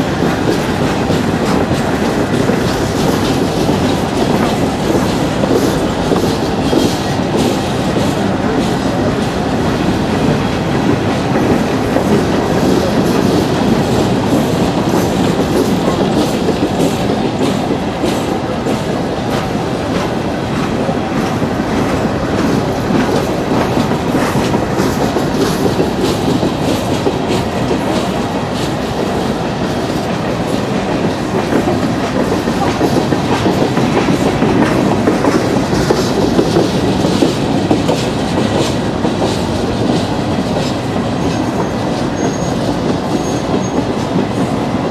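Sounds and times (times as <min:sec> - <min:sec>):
train wheels rumbling on rails: 0:00.0 - 0:44.9.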